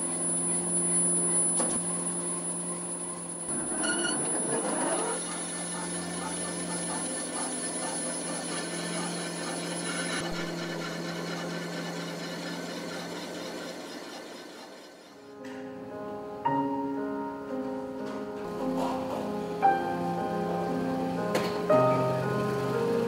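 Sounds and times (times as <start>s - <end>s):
electric motor humming: 0.0s - 15.3s.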